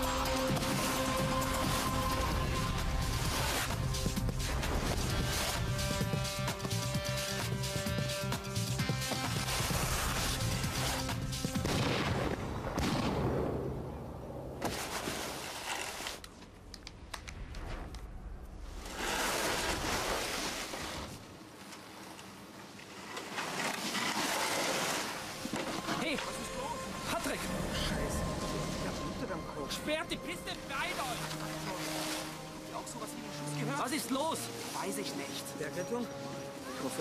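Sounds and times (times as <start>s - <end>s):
soundtrack music: 0.0s - 12.8s, 25.7s - 37.0s.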